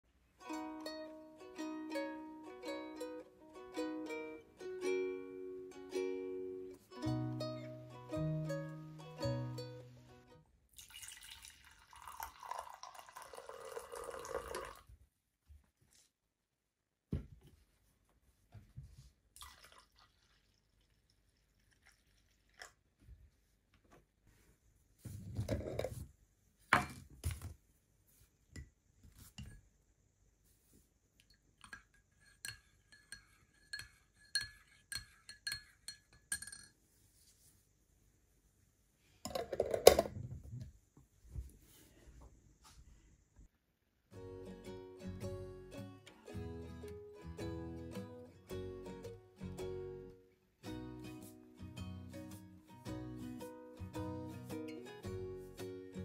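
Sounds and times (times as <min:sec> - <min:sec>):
spoon stirring in a mug: 0:31.2 - 0:36.8
ceramic mug and plate clinks: 0:31.6 - 0:36.8.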